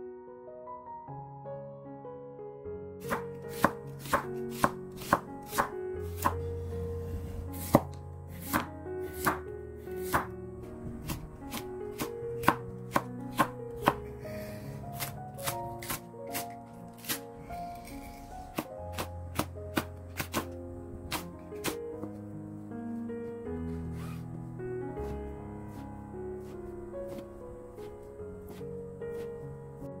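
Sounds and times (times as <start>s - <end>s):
knife chopping on wooden board: 3.0s - 6.5s, 7.6s - 10.3s, 11.0s - 14.0s, 15.0s - 17.2s, 18.5s - 20.5s, 21.1s - 21.8s, 25.0s - 29.3s.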